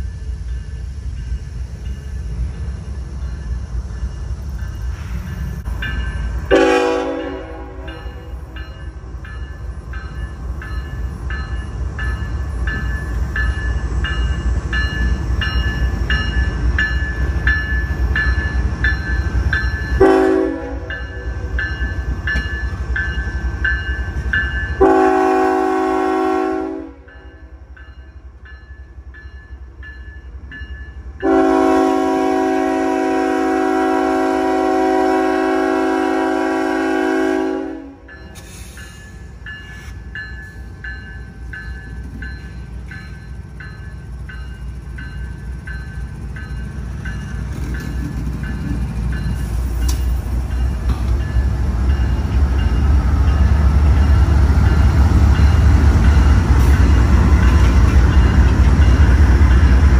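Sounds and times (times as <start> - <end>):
locomotive air horn blasts: 6.5 - 8.2, 20.0 - 21.0, 24.8 - 27.1, 31.2 - 38.1.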